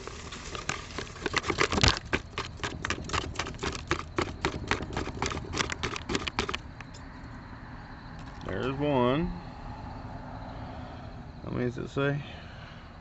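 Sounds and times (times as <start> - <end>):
dry mix pouring into metal can: 0.0 - 6.6.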